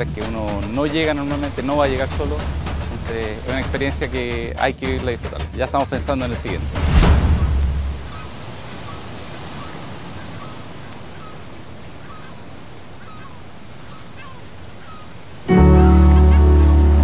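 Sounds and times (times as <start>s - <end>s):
faint bird chirps: 7.4s - 15.5s
loud music with sustained tones: 15.5s - 17.0s.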